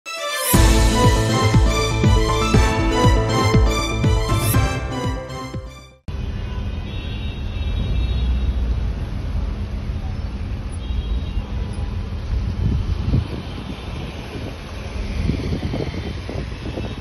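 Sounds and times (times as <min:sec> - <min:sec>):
theme music: 0:00.0 - 0:06.1
road traffic rumble: 0:06.1 - 0:17.0.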